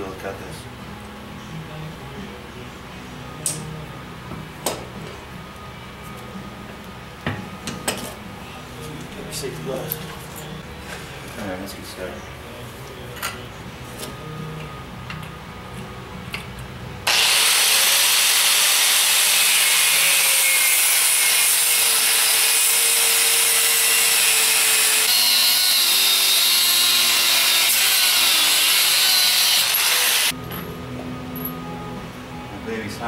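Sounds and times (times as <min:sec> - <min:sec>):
abrasive wheel grinding steel: 0:17.1 - 0:30.3.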